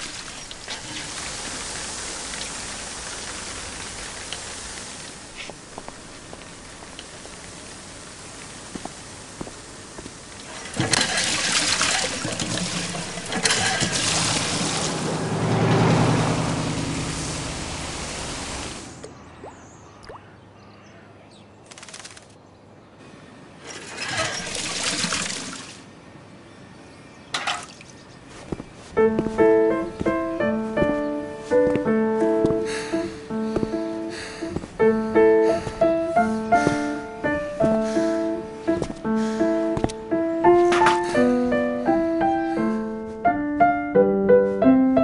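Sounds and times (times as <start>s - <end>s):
water gushing into metal bucket: 10.5s - 15.0s, 23.7s - 25.7s.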